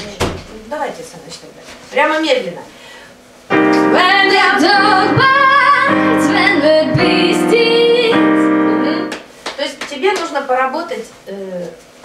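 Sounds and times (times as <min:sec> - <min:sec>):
woman singing jazz melody: 0:03.5 - 0:09.3
piano chords: 0:03.5 - 0:09.4.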